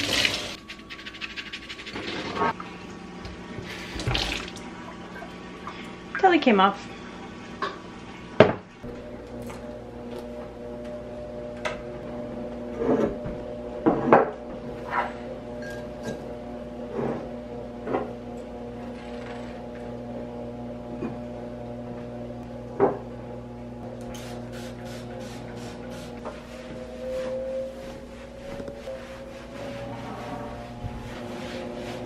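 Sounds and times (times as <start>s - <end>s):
steady low hum: 8.8s - 32.0s.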